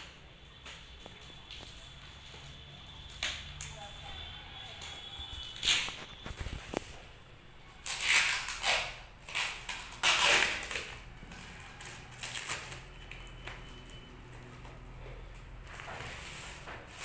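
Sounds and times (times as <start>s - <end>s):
plastic scratching and rustling: 0.0s - 17.0s
plastic mailer tearing: 7.8s - 13.4s.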